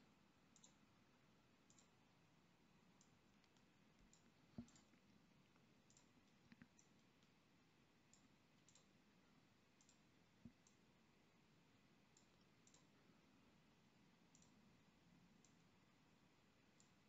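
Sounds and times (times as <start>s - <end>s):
faint computer mouse clicks: 0.5s - 0.8s, 1.7s - 2.0s, 3.0s - 5.1s, 5.8s - 7.4s, 8.1s - 9.0s, 9.8s - 10.8s, 12.1s - 13.0s, 14.3s - 14.6s.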